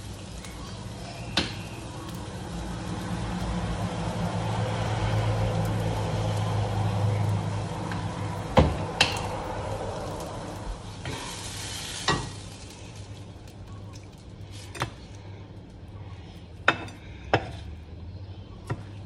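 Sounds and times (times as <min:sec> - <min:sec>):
fish sizzling in a frying pan: 0:00.0 - 0:14.9.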